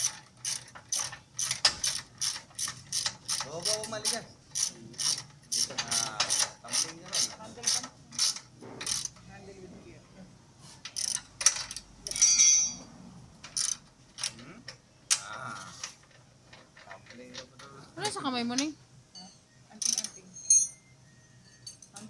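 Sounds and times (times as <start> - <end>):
ratchet wrench clicking: 0.0 - 9.2, 10.9 - 12.8, 13.5 - 14.4, 19.8 - 20.2.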